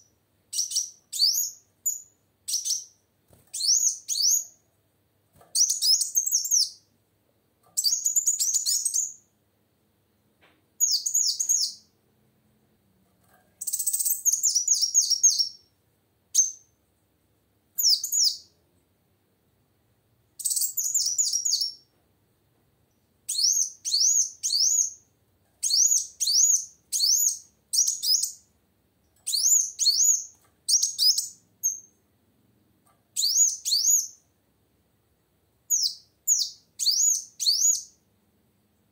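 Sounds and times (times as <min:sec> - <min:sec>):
sunbird high chirps: 0:00.0 - 0:04.6, 0:05.5 - 0:06.9, 0:07.8 - 0:09.3, 0:10.8 - 0:11.9, 0:13.6 - 0:15.7, 0:16.3 - 0:16.7, 0:17.8 - 0:18.6, 0:20.4 - 0:21.9, 0:23.3 - 0:28.5, 0:29.2 - 0:32.0, 0:33.2 - 0:34.2, 0:35.7 - 0:38.0.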